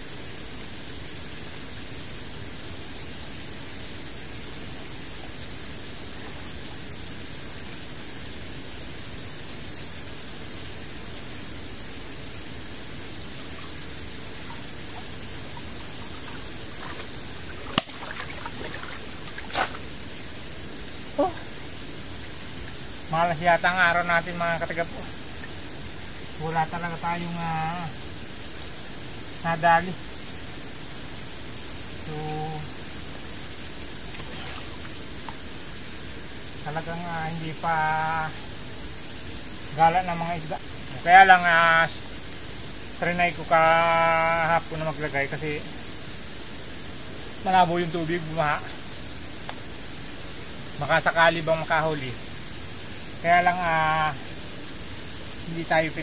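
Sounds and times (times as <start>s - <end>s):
insects chirring: 0.0s - 56.0s
pulsing insect trill: 0.0s - 56.0s
water splashing and trickling: 10.6s - 29.0s, 31.0s - 36.5s.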